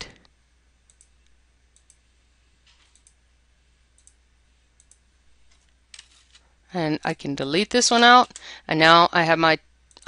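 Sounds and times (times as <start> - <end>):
low steady hum: 0.0 - 10.0
faint computer mouse clicks: 0.9 - 2.0, 2.7 - 3.2, 4.0 - 4.2, 4.8 - 5.6.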